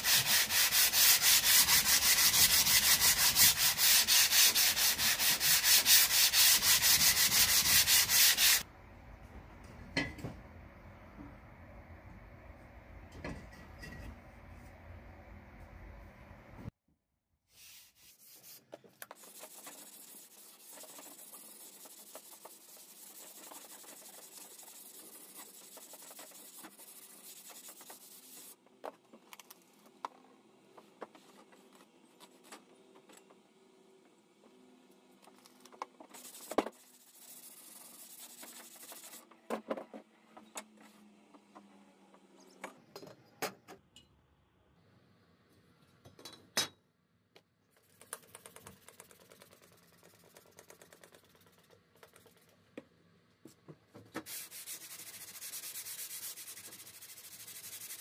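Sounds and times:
sandpaper rubbing on metal blade: 0.0s - 8.6s, 19.2s - 28.6s, 36.2s - 39.2s, 54.3s - 58.0s.

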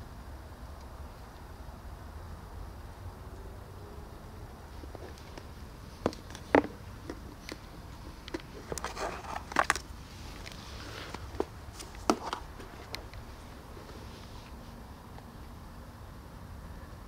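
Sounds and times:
rustling: 4.7s - 15.4s.

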